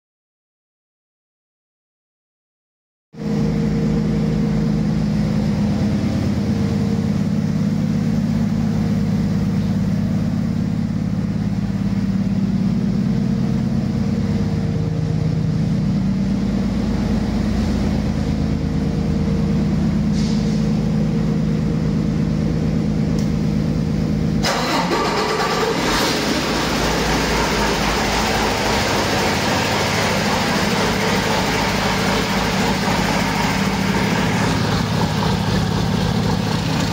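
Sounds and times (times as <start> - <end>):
diesel engine running: 3.2 - 36.9
hiss: 20.1 - 20.8.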